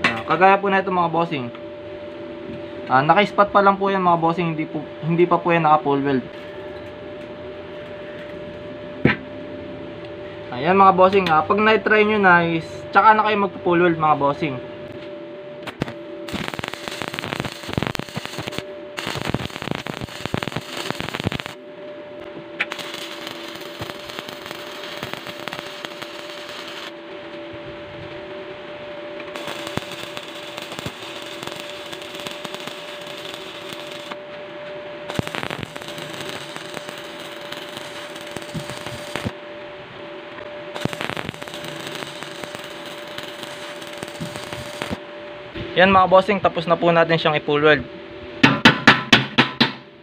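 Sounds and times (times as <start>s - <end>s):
steady hum: 0.0s - 50.0s
sharp welding pops: 15.6s - 21.6s, 22.6s - 27.0s, 29.2s - 34.3s, 35.1s - 39.4s, 40.7s - 45.0s
welding arc sizzling and crackling: 15.6s - 21.6s, 22.2s - 27.4s, 29.2s - 34.4s, 35.0s - 39.4s, 40.3s - 45.1s.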